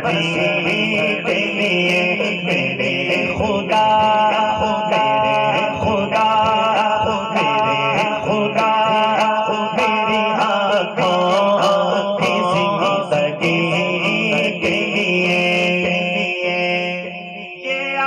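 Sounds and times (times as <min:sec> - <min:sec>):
man singing through microphone: 0:00.0 - 0:18.0.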